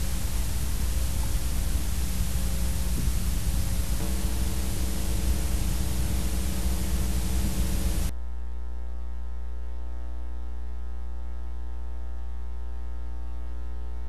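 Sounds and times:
static hiss: 0.0s - 8.1s
electrical mains hum: 0.0s - 14.0s.

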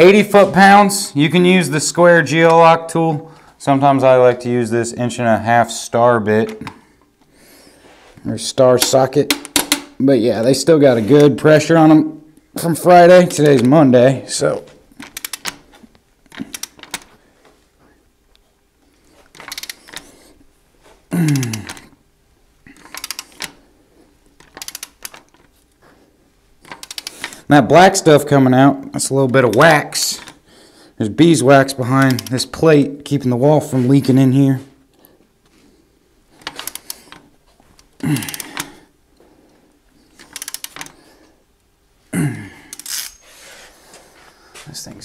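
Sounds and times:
ratchet wrench clicking: 15.0s - 15.6s, 19.4s - 20.0s, 22.9s - 23.5s, 24.4s - 25.2s, 26.7s - 27.1s, 40.3s - 40.9s, 42.7s - 43.2s.

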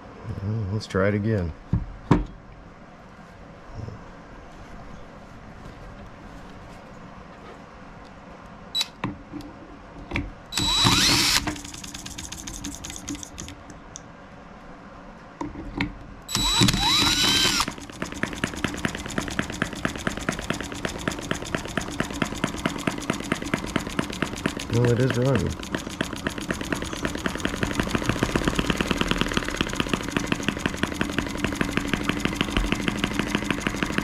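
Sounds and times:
cordless drill motor whine: 10.5s - 13.3s, 16.3s - 34.0s
small engine idling: 10.6s - 13.5s, 16.3s - 34.0s.

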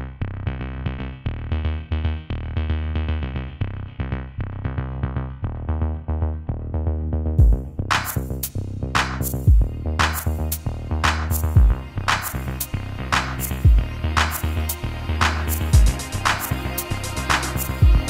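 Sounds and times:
electronic synthesizer music: 5.5s - 18.0s.

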